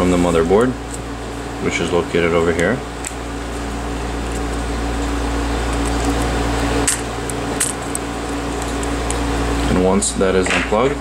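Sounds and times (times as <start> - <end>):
fan-like machine hum: 0.0 - 11.0.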